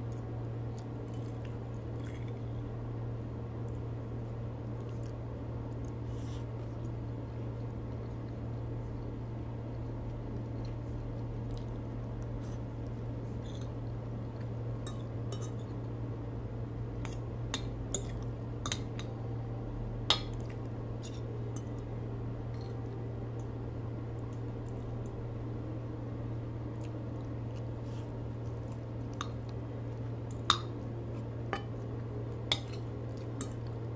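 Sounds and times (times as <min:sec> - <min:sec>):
low hum: 0:00.0 - 0:33.9.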